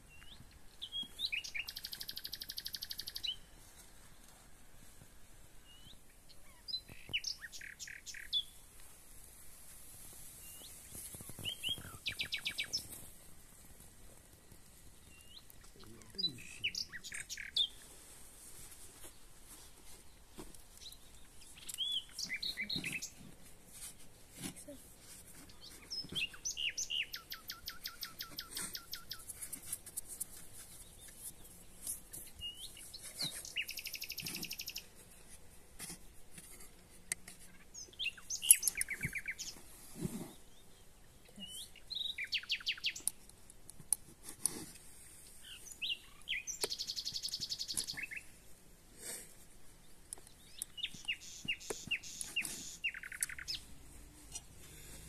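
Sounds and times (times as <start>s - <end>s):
songbirds chirping and trilling: 0.0s - 55.0s.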